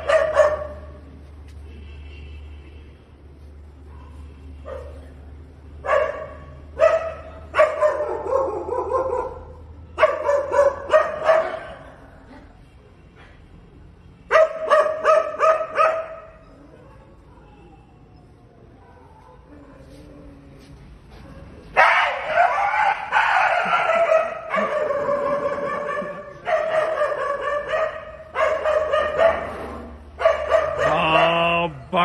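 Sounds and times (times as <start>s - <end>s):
dog barking: 0.0s - 1.0s, 3.9s - 5.1s, 5.8s - 12.0s, 14.3s - 17.8s, 18.8s - 20.0s, 21.3s - 31.9s.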